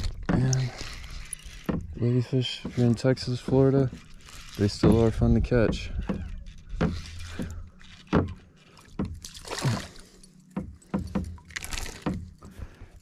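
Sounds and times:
fish splashing: 6.1 - 12.4.

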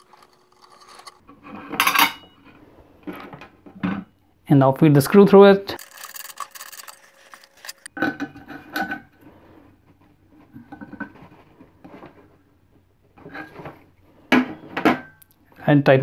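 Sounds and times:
metal parts clinking and knocking: 5.8 - 7.9.

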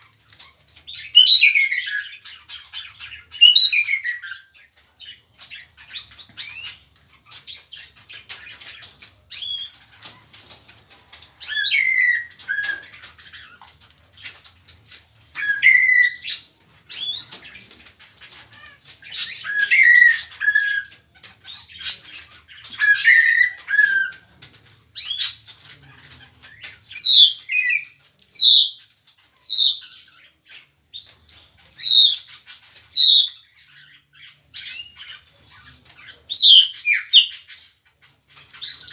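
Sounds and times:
mockingbird singing: 0.9 - 6.8, 15.4 - 24.2, 25.0 - 28.8, 29.4 - 30.3, 30.9 - 37.7.

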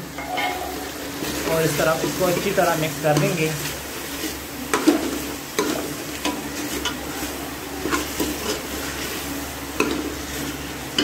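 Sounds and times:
meat frying sizzle: 0.0 - 11.0
spoon clinking against pot: 0.2 - 0.8.

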